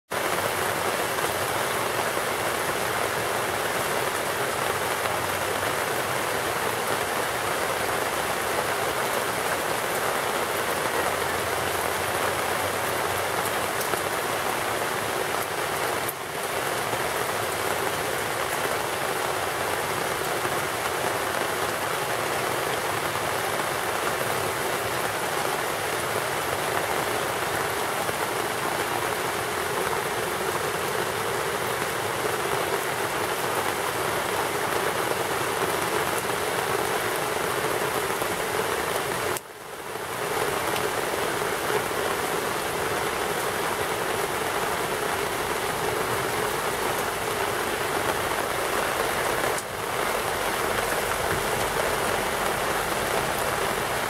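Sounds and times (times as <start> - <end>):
heavy rain falling: 0.1 - 54.0.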